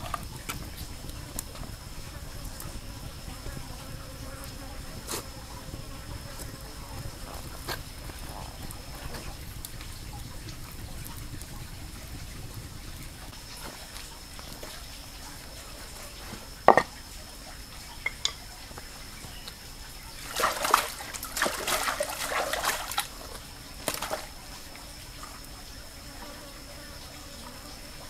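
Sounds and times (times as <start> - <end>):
water splashing: 0.0 - 25.9.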